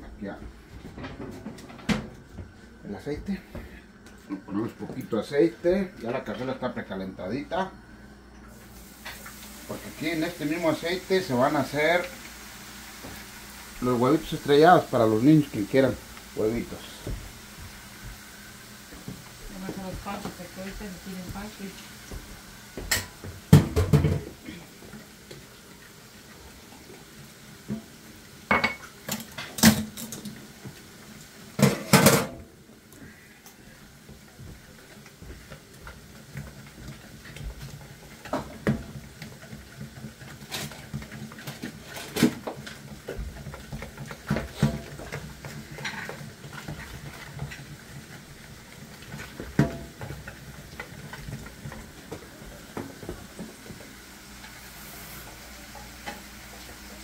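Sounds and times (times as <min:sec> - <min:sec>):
utensils and dishes clattering: 0:22.8 - 0:24.4, 0:28.5 - 0:30.4, 0:31.6 - 0:32.4, 0:34.8 - 0:53.8.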